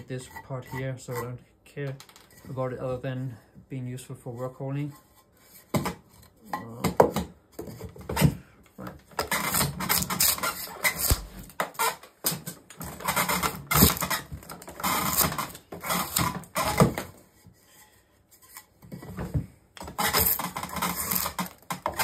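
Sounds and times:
drawknife shaving wood: 9.2s - 11.9s, 13.0s - 17.0s, 19.8s - 22.0s.

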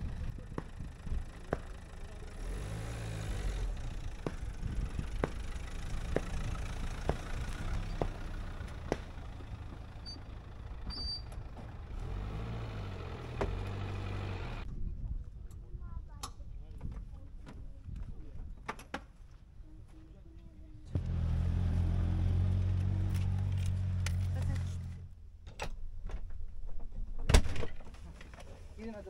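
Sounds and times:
car engine running low: 0.0s - 14.7s, 20.9s - 25.5s.

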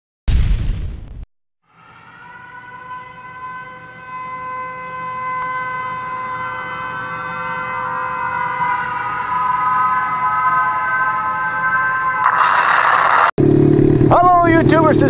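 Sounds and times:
boom: 0.3s - 1.3s
siren-like synthetic tone: 1.6s - 13.3s.

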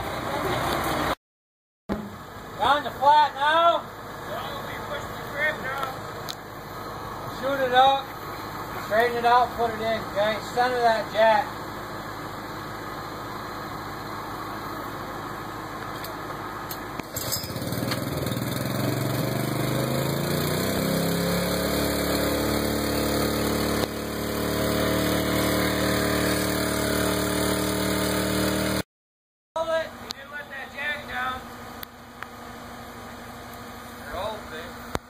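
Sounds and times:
engine running and speeding up: 11.4s - 28.8s.

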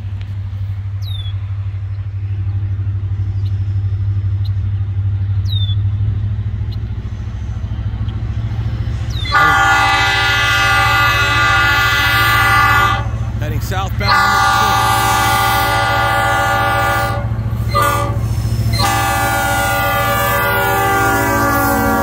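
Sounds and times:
low train rumble: 0.0s - 22.0s
diesel locomotive horn: 9.1s - 22.0s.

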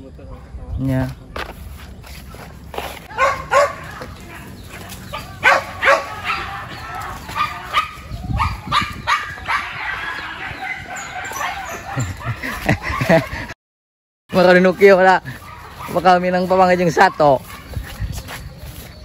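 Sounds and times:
dogs barking and yipping: 3.0s - 13.6s, 14.4s - 19.0s.

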